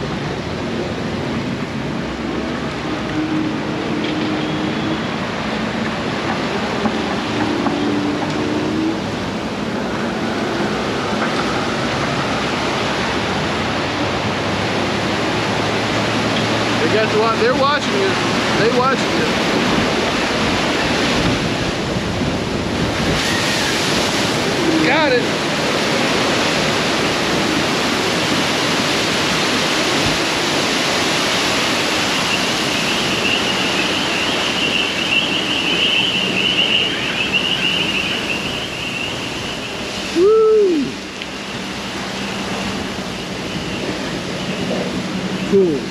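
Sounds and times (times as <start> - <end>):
river rapids rushing: 0.0 - 45.9
high wavering whistle tone: 32.1 - 41.7.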